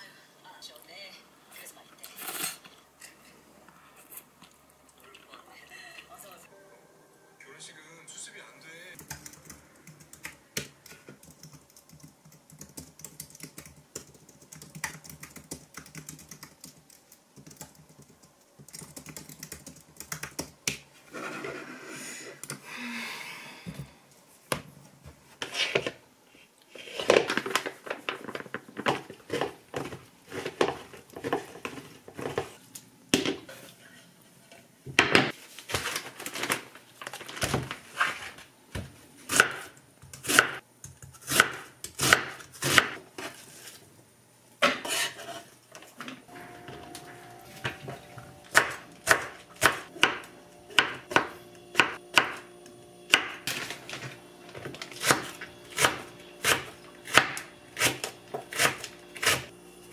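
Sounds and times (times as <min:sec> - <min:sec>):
typing on a keyboard: 0:09.0 - 0:20.6
knife chopping on wooden board: 0:48.5 - 0:52.4.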